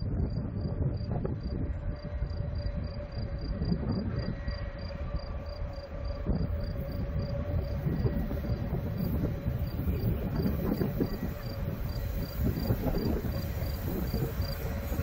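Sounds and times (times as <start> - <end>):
faint steady whine: 0.0 - 15.0
train wheels rumbling on rail: 0.0 - 15.0.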